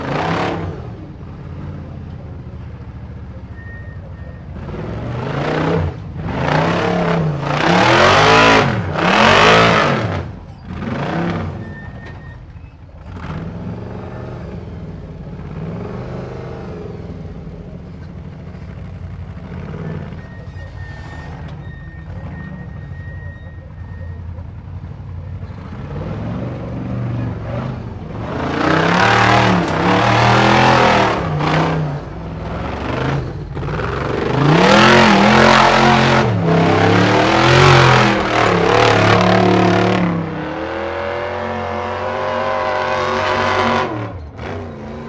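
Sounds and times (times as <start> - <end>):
car engine revving hard: 0.0 - 0.8, 4.6 - 11.6, 25.9 - 45.0.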